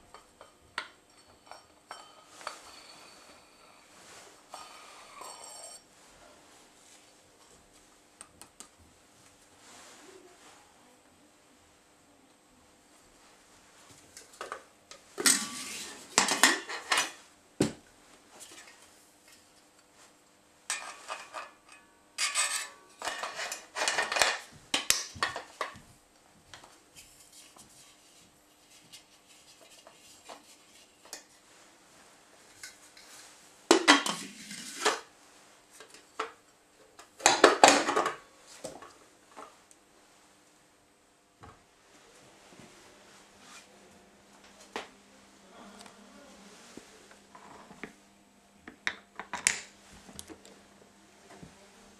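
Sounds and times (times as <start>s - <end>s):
metal parts clinking and scraping: 20.7s - 24.5s.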